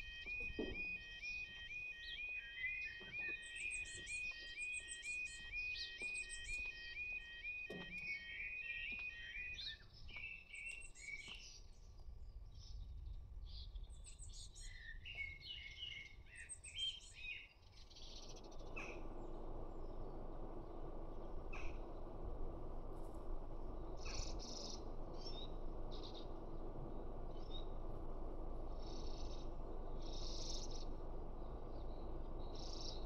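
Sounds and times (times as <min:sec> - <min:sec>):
level crossing alarm warbling: 0:00.0 - 0:09.6
steady low rumbling: 0:00.0 - 0:09.7, 0:17.9 - 0:33.0
birds chirping: 0:00.0 - 0:11.7, 0:13.6 - 0:33.0.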